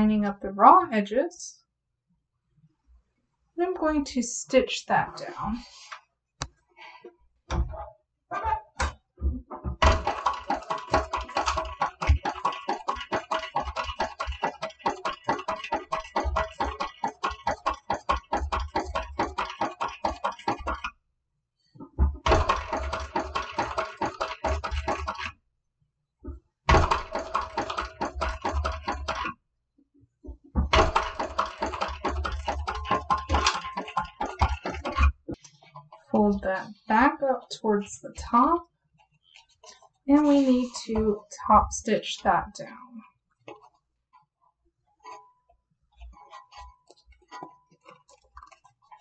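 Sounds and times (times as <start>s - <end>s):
sewing machine needle strokes: 10.0s - 20.9s, 22.4s - 25.3s, 26.8s - 29.3s, 30.8s - 35.2s.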